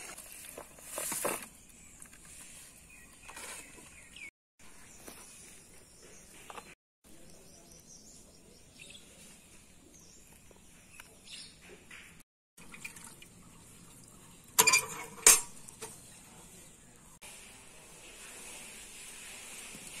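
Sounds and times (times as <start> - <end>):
metal pan clanking: 14.6 - 16.0.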